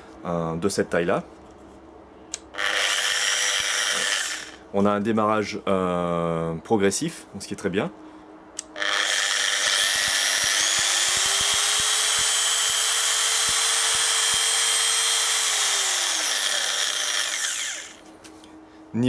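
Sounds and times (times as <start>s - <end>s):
orbital polisher motor running: 2.6s - 4.6s, 8.8s - 18.0s.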